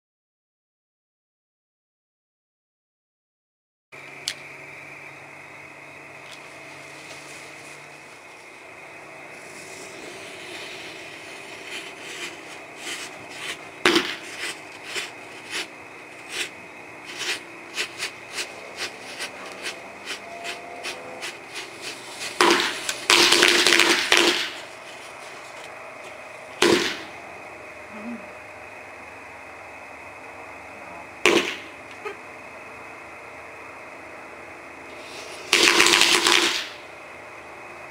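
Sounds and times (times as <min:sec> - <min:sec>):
firecrackers popping and banging: 0:10.9 - 0:15.7, 0:20.5 - 0:25.1, 0:26.6 - 0:27.1, 0:31.2 - 0:31.7, 0:35.4 - 0:36.8.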